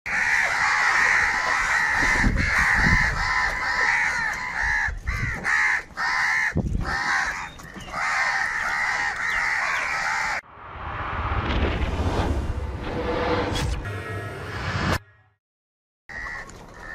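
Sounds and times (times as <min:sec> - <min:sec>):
crows cawing: 0:00.1 - 0:10.4, 0:16.1 - 0:16.9.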